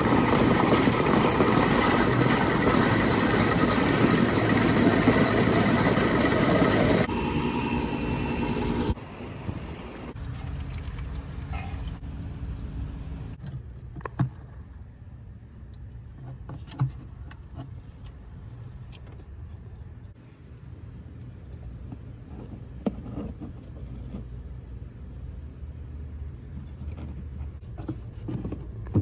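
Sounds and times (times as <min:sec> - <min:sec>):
drain-cleaning machine running: 0:00.0 - 0:10.2
low hum: 0:00.0 - 0:16.1.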